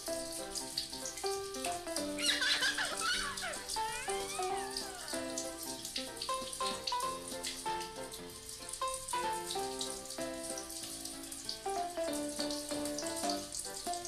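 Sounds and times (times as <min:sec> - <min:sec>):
background music melody: 0:00.0 - 0:14.0
water running from bathtub tap: 0:00.0 - 0:14.0
water splashing: 0:01.6 - 0:07.6.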